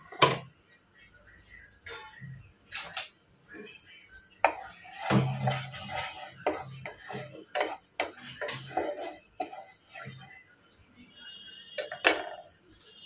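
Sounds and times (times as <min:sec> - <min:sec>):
spatula scraping knocks on pan: 0:04.4 - 0:10.2.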